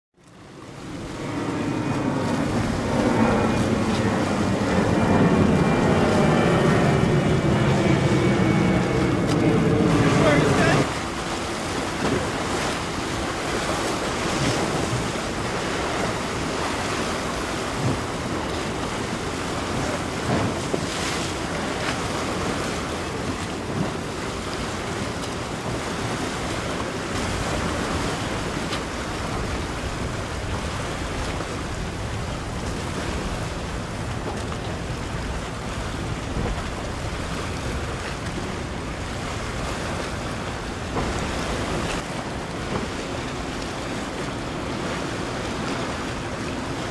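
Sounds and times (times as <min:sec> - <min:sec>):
choppy water: 0:00.1 - 0:46.9
ship's bow wake: 0:00.2 - 0:46.9
wind on microphone: 0:00.6 - 0:46.9.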